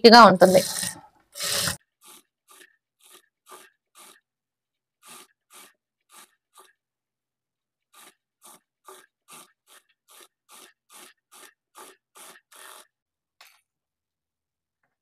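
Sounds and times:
short scraping strokes on cloth: 0.4 - 4.3, 5.0 - 6.8, 7.9 - 13.0.

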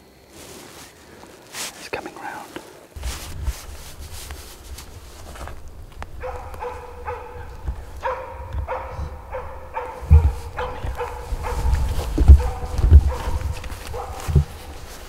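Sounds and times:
low thud: 4.8 - 14.8
dog barking: 5.4 - 15.0.

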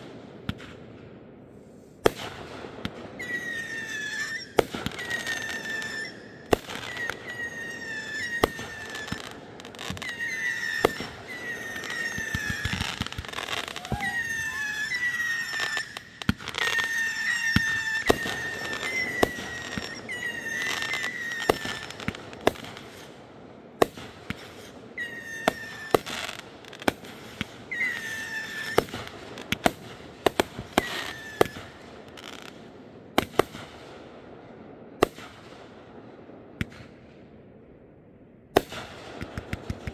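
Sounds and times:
fireworks bangs and crackles: 0.0 - 39.9
short high squealing tone: 13.6 - 16.0.

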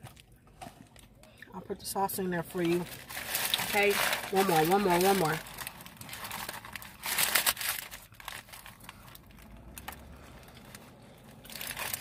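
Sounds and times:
paper wrapper crinkling: 2.5 - 12.0.

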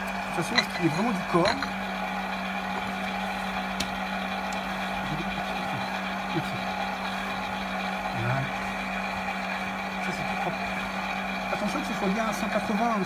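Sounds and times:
dough hook turning flour mixture: 0.0 - 13.0
stand mixer motor running: 0.0 - 13.0.

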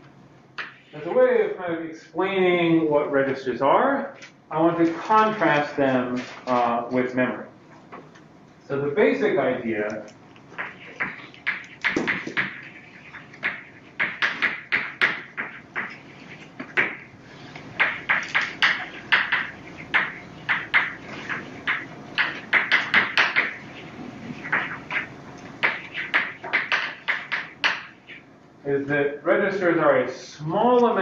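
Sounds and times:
chalk tapping and scratching on blackboard: 10.5 - 28.2.

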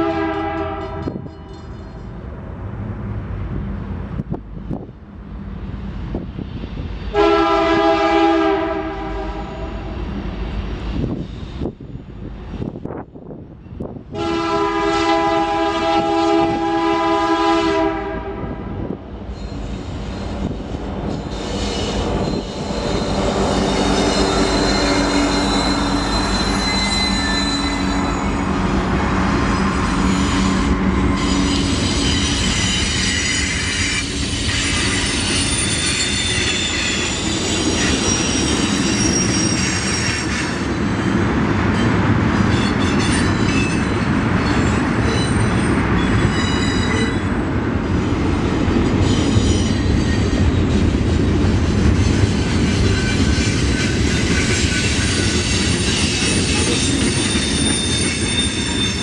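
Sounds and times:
locomotive horn: 0.0 - 1.7, 7.1 - 10.0, 14.1 - 18.8
wheel flanges squealing: 19.3 - 47.4, 51.8 - 59.0.

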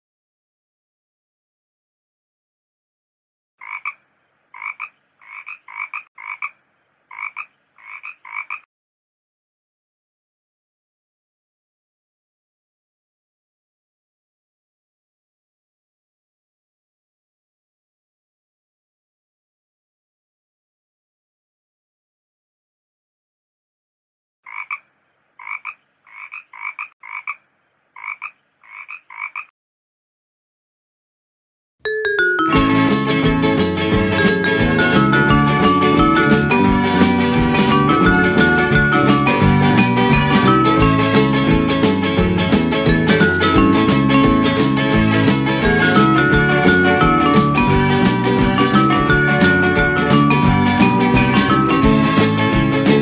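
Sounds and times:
frog croaking: 3.6 - 8.7, 24.5 - 29.5.

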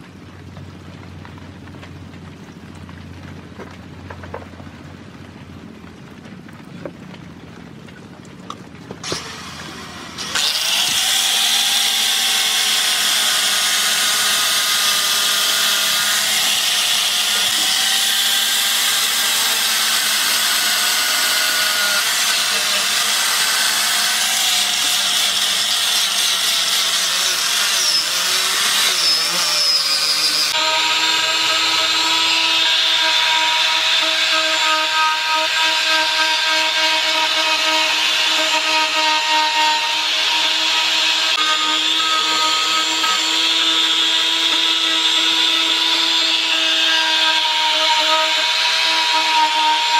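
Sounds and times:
angle grinder sanding wood: 9.0 - 49.9
rotary tool carving wood: 9.0 - 49.9.

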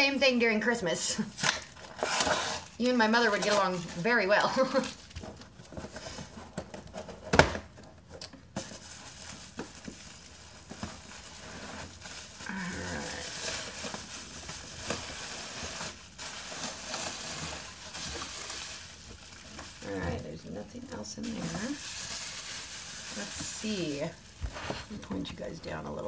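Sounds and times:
wrapping crinkling and rustling: 0.0 - 26.0
packing tape being torn off: 1.2 - 5.2.

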